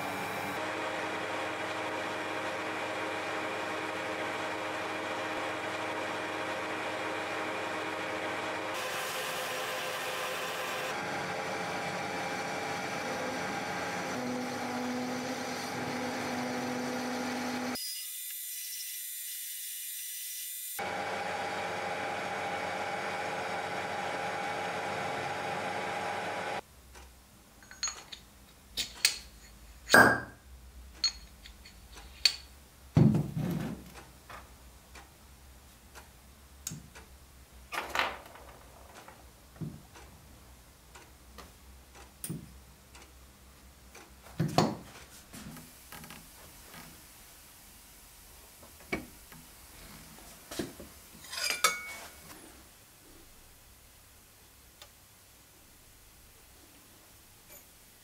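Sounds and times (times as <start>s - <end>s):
metal lathe running: 0.0s - 17.8s.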